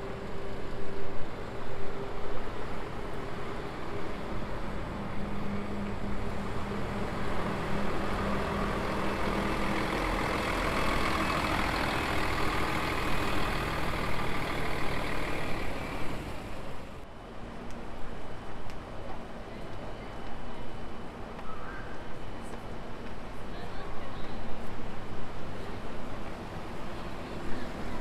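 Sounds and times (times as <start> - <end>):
bus engine driving past: 0.0 - 17.0, 25.0 - 28.0.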